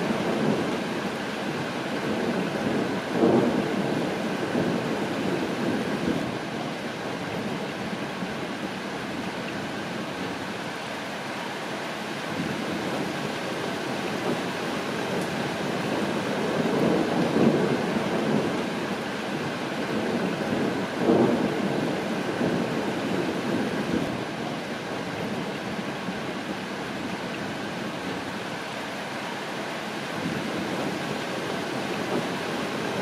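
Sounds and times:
steady rain: 0:00.0 - 0:33.0
rolling thunder: 0:15.1 - 0:18.7, 0:19.4 - 0:24.2, 0:30.2 - 0:33.0.

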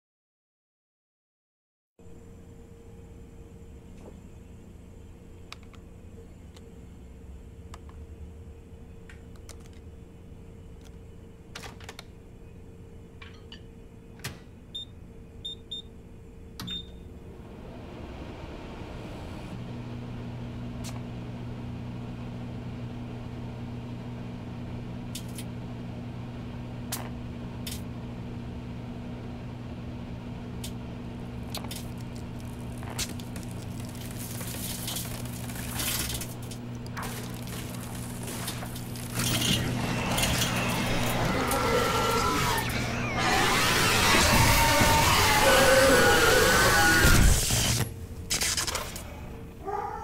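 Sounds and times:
microwave humming: 0:02.0 - 0:50.0
microwave keypad beeps: 0:14.8 - 0:15.9, 0:16.6 - 0:17.0.

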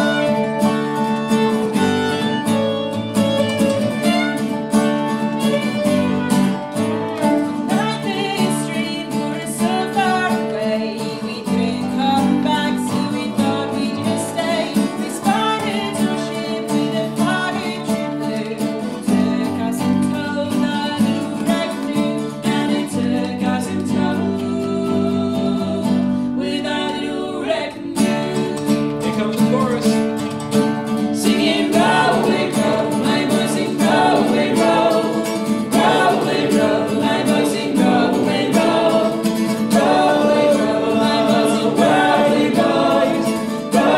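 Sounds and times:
woman singing: 0:00.0 - 0:00.6, 0:07.4 - 0:28.8, 0:31.2 - 0:43.9
bowed fiddle: 0:00.0 - 0:09.0
strummed acoustic guitar: 0:00.0 - 0:43.9
male harmony voices: 0:31.2 - 0:43.9.

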